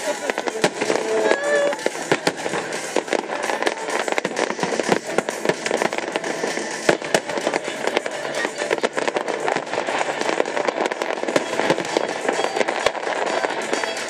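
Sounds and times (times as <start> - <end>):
fireworks bangs and cracks: 0.0 - 14.0
fireworks crackling: 0.0 - 14.0.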